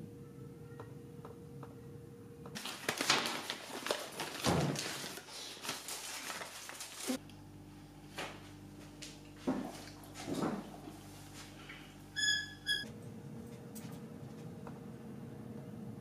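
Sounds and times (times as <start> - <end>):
paper wrapper crinkling and tearing: 2.6 - 7.2.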